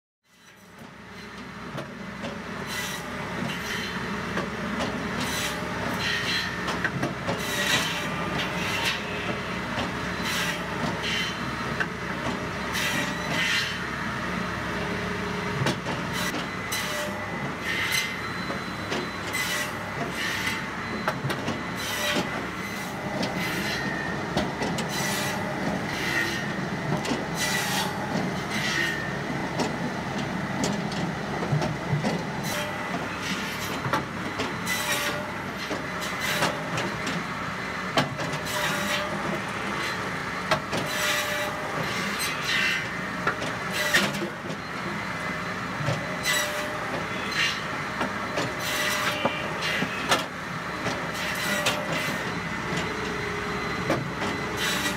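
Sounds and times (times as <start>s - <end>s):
circular saw rasping through logs: 2.6s - 4.1s, 5.2s - 9.4s, 10.1s - 11.5s, 12.7s - 14.0s, 15.7s - 18.4s, 19.3s - 20.8s, 21.8s - 29.2s, 32.1s - 37.0s, 38.3s - 44.4s, 46.0s - 47.8s, 48.5s - 50.1s, 51.0s - 52.4s, 54.6s - 54.9s.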